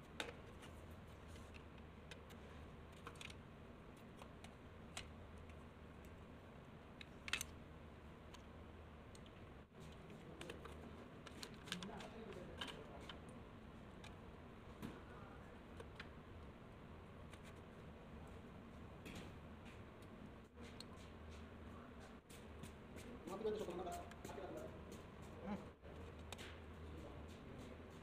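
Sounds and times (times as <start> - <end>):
faint clicks and taps: 19.0 - 28.0.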